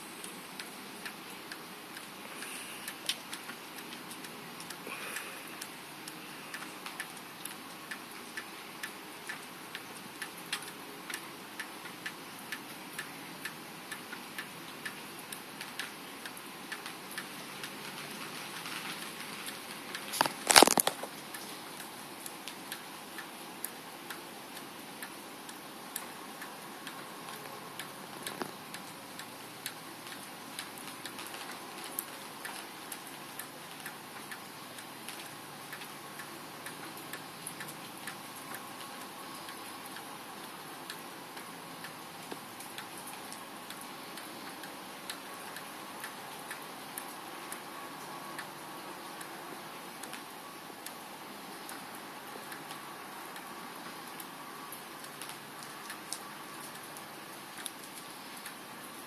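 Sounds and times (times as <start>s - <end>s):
regular ticking: 0.0s - 18.0s, 19.4s - 47.7s
faint hiss: 0.0s - 59.0s
sharp crackling burst: 17.2s - 21.5s.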